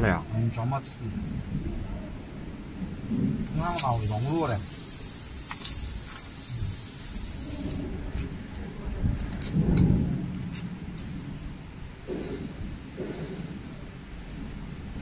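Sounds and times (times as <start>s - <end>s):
steady hiss: 2.5s - 15.0s
sharp clicks and knocks: 9.1s - 11.3s, 12.0s - 15.0s.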